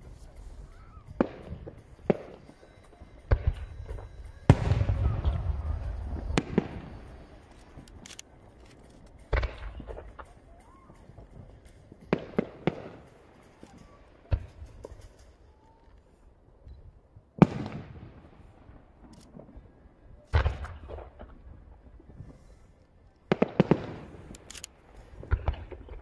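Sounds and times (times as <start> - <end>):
distant firework bangs: 0.0 - 15.7, 17.4 - 22.6, 23.3 - 24.4, 25.1 - 26.0.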